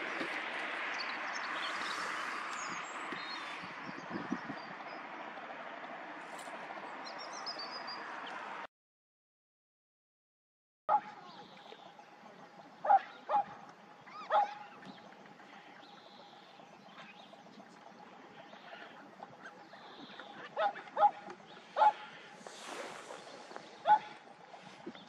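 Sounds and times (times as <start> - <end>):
coots calling: 12.8 - 22.4, 23.7 - 24.8.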